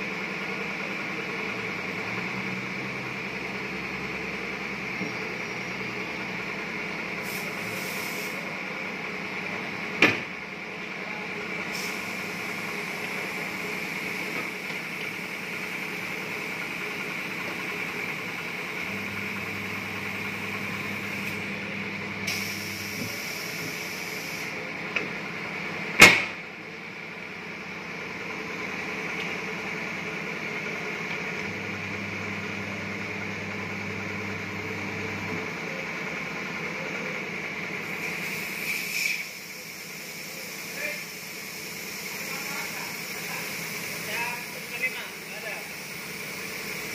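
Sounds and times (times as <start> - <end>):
air hissing: 7.2 - 8.5, 11.6 - 21.6, 22.2 - 24.6, 37.8 - 46.9
turntable motor humming: 18.7 - 23.7, 31.1 - 35.4.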